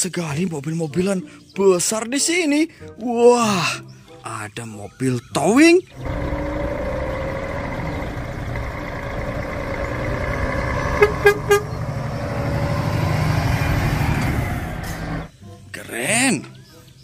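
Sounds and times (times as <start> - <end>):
truck diesel engine rumbling: 5.9 - 15.3
truck horn toots: 9.6 - 12.1.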